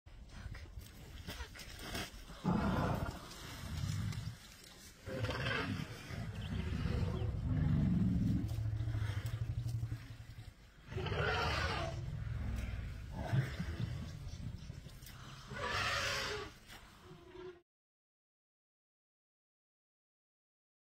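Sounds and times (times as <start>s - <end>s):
elephant rumbling roars: 5.0s - 17.6s.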